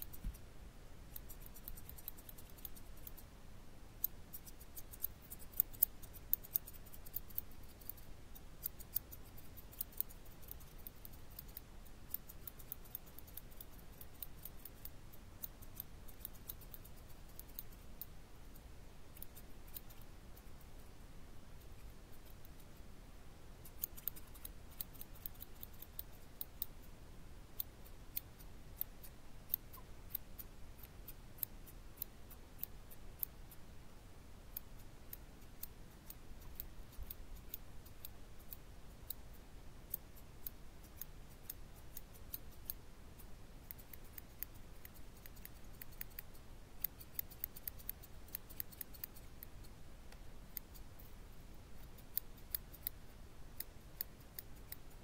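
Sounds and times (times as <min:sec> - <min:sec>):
faint low hum: 0:00.0 - 0:55.0
scissors snipping hair: 0:01.1 - 0:03.3, 0:04.0 - 0:18.2, 0:19.2 - 0:20.5, 0:23.6 - 0:26.8, 0:34.5 - 0:42.8, 0:43.6 - 0:51.2, 0:51.8 - 0:55.0.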